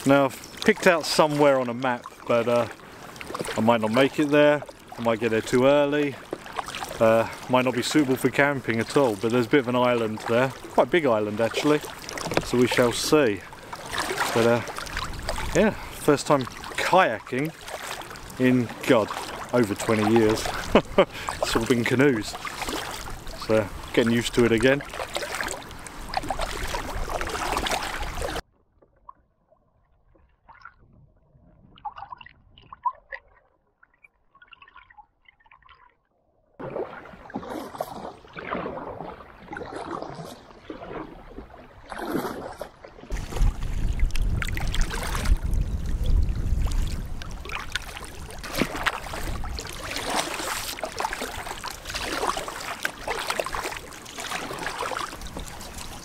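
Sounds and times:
paddle splashing in water: 0.0 - 30.9, 36.6 - 56.0
wind buffeting microphone: 43.1 - 50.0.

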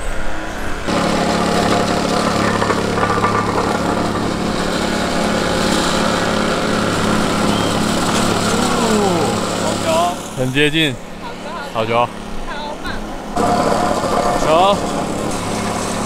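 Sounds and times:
small engine idling: 0.9 - 16.0.

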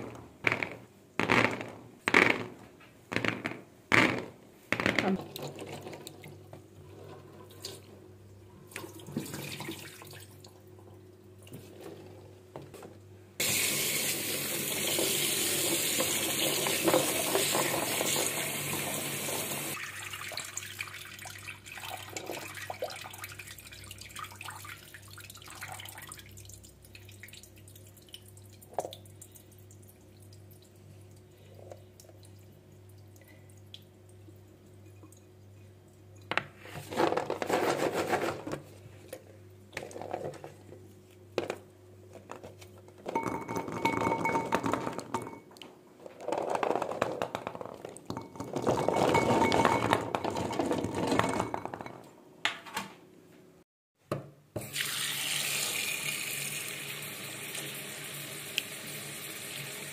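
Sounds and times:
tap water running into metal tray: 13.4 - 26.2, 54.6 - 59.9.

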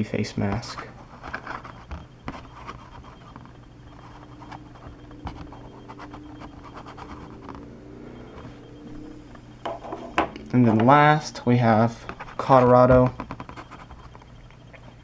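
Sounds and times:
fingers scratching and rubbing plastic: 0.6 - 7.6.

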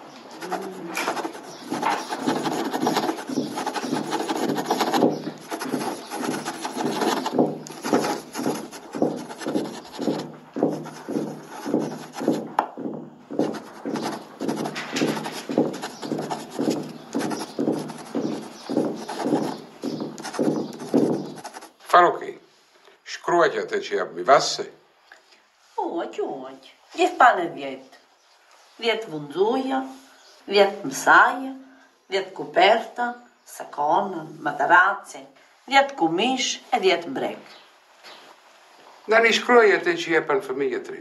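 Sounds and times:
rasping rubbing strokes: 0.3 - 21.8.

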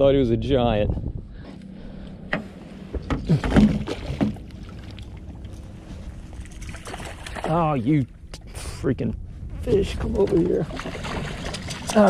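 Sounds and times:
faint steady hum: 0.0 - 12.0
fish splashing in water: 6.3 - 7.6, 10.6 - 12.0.

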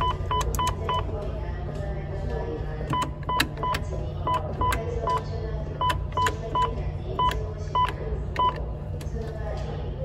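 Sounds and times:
keypad clicks and beeps: 0.0 - 1.1, 2.9 - 8.6
steady low hum: 0.0 - 10.0.

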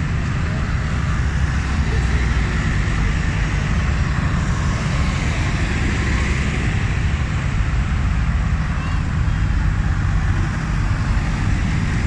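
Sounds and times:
tractor diesel engines: 0.0 - 12.0.

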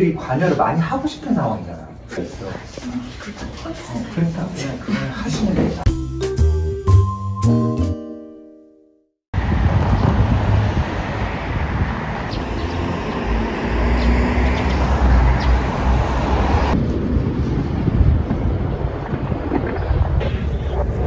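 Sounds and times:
street noise: 9.4 - 21.0
wind buffeting microphone: 9.4 - 21.0.

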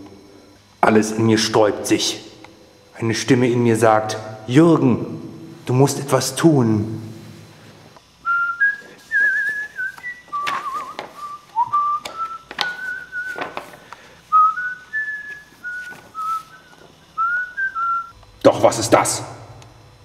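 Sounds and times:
person whistling a tune: 8.2 - 13.4, 14.3 - 18.2.

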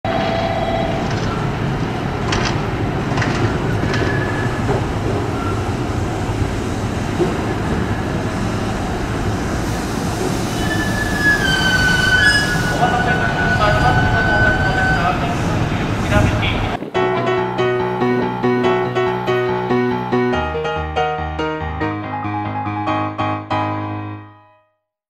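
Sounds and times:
electric train rumbling: 0.1 - 21.2
high squealing brakes: 3.5 - 5.8, 9.7 - 16.2.

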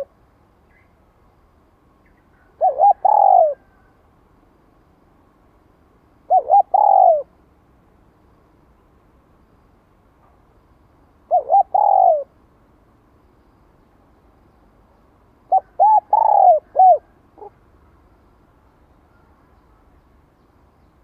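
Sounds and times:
dove cooing: 2.4 - 3.9, 6.3 - 7.3, 11.3 - 12.4, 15.5 - 17.6.

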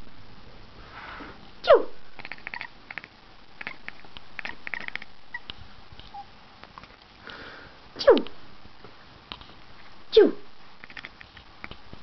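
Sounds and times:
soft clicks and rustling: 8.2 - 10.0.

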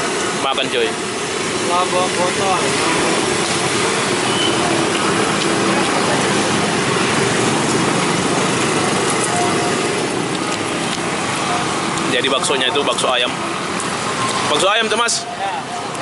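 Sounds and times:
engine hum of passing vehicles: 0.0 - 16.0
road traffic hiss: 0.0 - 16.0.

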